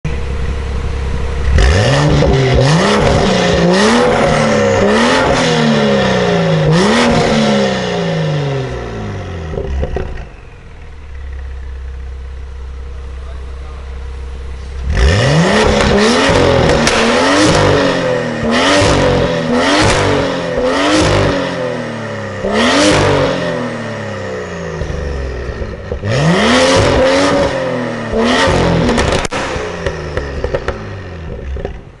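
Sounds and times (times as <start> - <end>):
car engine revving: 0.1 - 32.0
exhaust pops and crackles: 9.5 - 11.7, 15.6 - 17.8, 24.8 - 26.1, 28.1 - 32.0.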